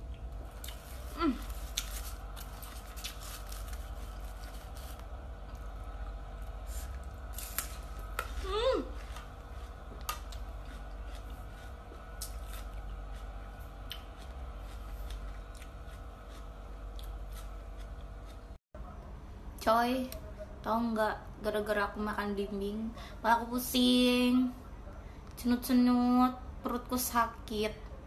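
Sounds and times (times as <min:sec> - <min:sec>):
crunchy chewing: 0:00.0 - 0:18.6
low steady hum: 0:00.0 - 0:28.0.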